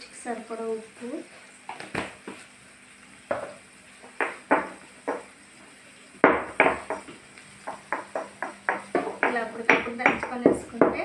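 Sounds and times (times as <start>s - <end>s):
stone pestle pounding in mortar: 6.2s - 7.1s, 7.7s - 11.0s.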